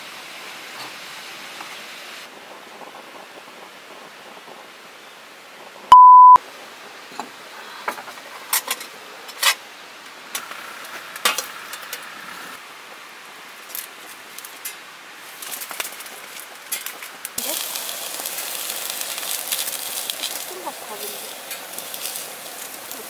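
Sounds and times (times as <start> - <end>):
loud electronic beep: 5.9 - 6.4
metal cookware and tongs clinking: 8.5 - 9.6.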